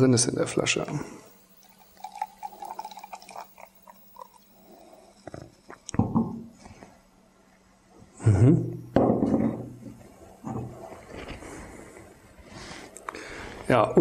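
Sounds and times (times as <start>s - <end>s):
beer pouring and gurgling: 0.9s - 6.4s.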